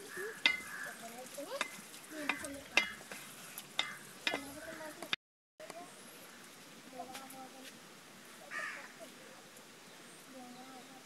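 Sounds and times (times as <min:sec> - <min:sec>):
curry cooking: 0:00.0 - 0:05.2.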